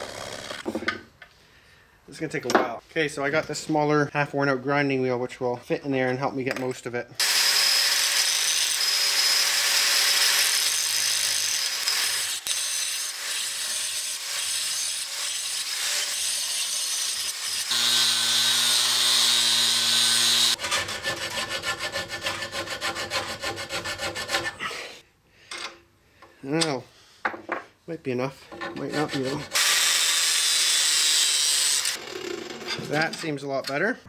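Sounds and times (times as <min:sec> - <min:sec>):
angle grinder cutting steel: 0:00.0 - 0:00.6, 0:07.2 - 0:22.1, 0:28.9 - 0:32.0
hand file rasping metal: 0:10.3 - 0:24.7, 0:28.5 - 0:29.6.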